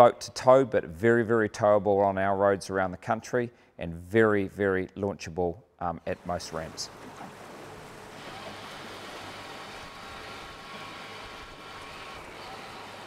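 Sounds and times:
wind: 6.0 - 13.0.

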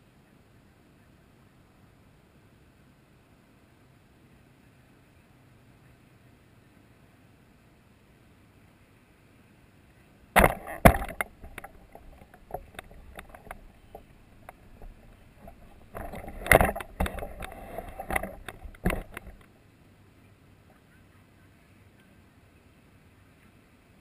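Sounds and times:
camera handling noise: 10.4 - 19.5.

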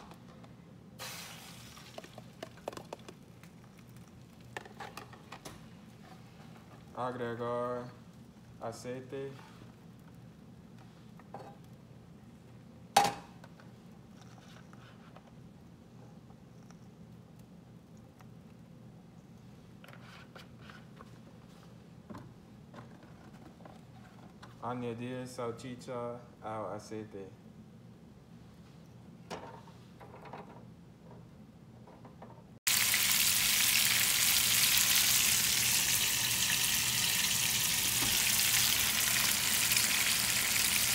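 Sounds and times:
sausages sizzling in a frying pan: 1.0 - 2.1, 32.7 - 40.9.

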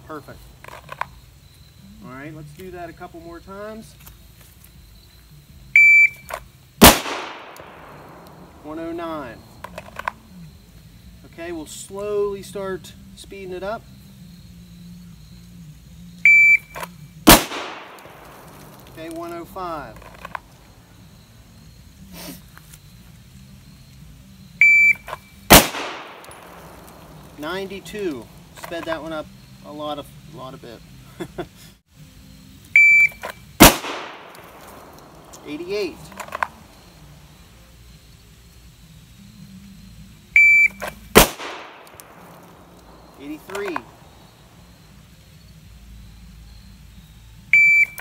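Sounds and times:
pistol shot: 6.8 - 8.6, 17.2 - 19.0, 25.5 - 27.4, 33.6 - 36.5, 41.1 - 44.0.

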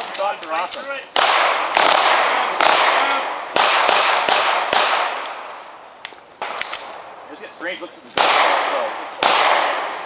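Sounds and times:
handgun shots with echo: 0.0 - 5.4, 8.2 - 10.0.

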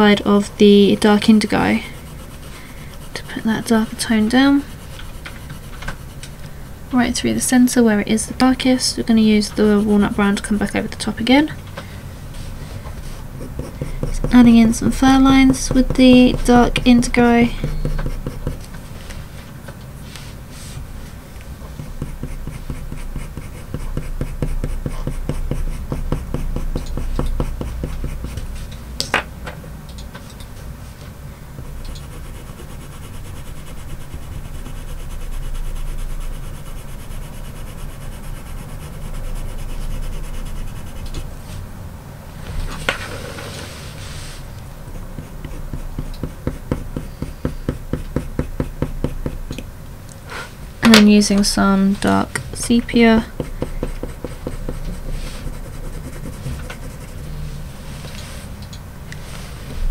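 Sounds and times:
pencil scratching on paper: 0.0 - 6.4, 8.4 - 11.4, 13.0 - 18.7, 21.7 - 28.6, 31.6 - 41.3, 42.9 - 49.5, 52.6 - 57.3.

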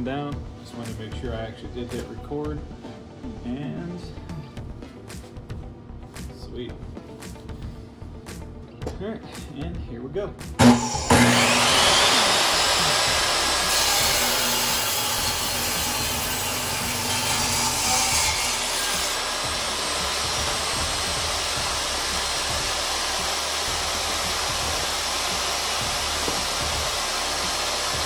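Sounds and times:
saw blade ripping through wood: 10.6 - 28.0
table saw running: 10.6 - 28.0.

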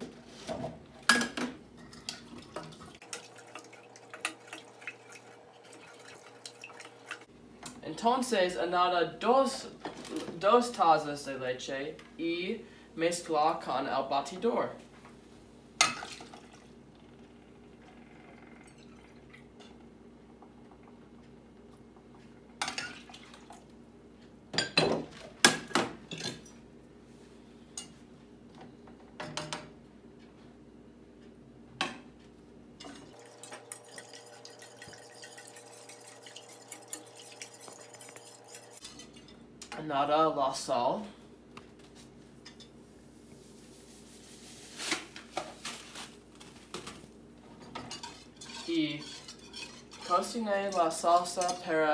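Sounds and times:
kitchenware knocking and clinking: 1.0 - 2.1, 24.5 - 26.4, 29.2 - 29.7
whisk ticking against saucepan: 47.9 - 51.6.

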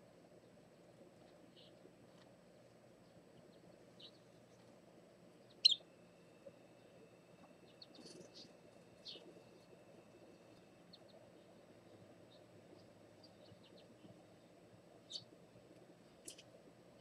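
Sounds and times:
faint low hum: 0.0 - 17.0
high-pitched bird chirps: 5.6 - 5.8.

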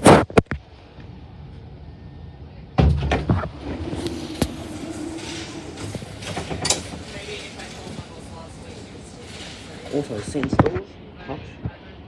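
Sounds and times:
door mechanism humming: 2.8 - 8.5.

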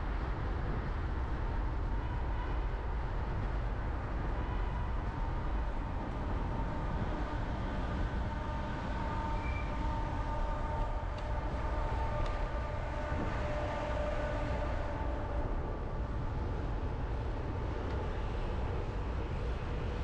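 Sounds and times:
bicycle road rumble: 0.0 - 20.0
wind noise: 0.0 - 20.0
faint whining tones: 4.2 - 20.0.

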